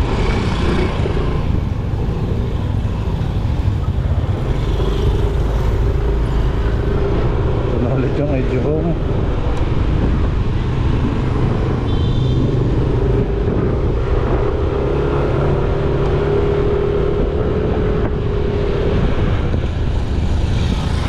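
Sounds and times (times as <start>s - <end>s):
road noise: 0.0s - 21.0s.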